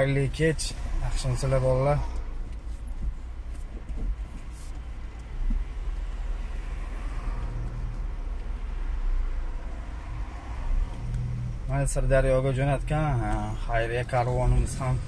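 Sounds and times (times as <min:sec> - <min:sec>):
car engine and road noise: 0:00.0 - 0:15.0.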